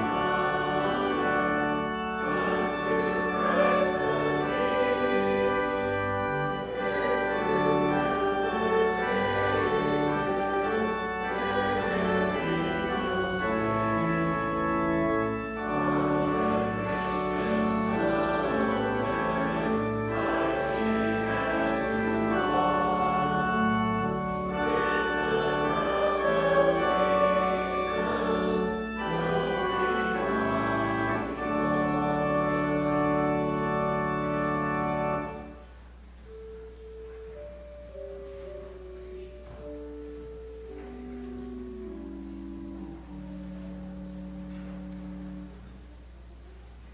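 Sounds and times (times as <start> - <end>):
church organ playing: 0.0 - 46.9.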